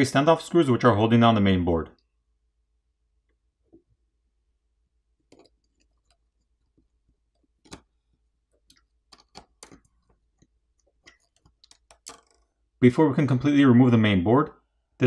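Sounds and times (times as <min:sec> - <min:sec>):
small phone parts clicking: 0:07.3 - 0:07.9, 0:08.5 - 0:12.6.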